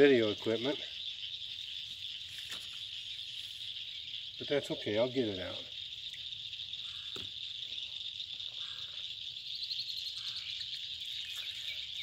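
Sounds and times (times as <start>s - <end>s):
fainter lower insect calls: 0.0s - 12.0s
high-pitched insect chorus: 0.0s - 12.0s.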